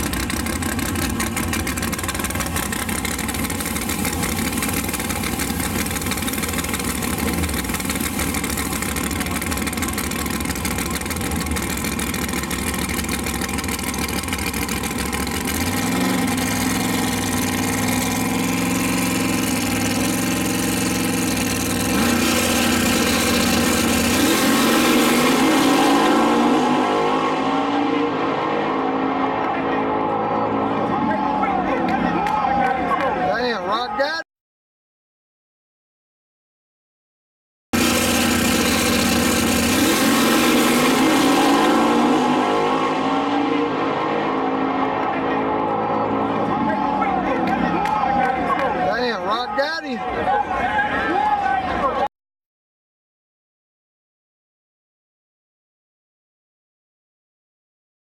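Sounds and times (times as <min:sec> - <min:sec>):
drag car engine revving: 0:00.0 - 0:32.0, 0:37.8 - 0:49.4
second car engine: 0:00.0 - 0:33.9, 0:37.8 - 0:52.1.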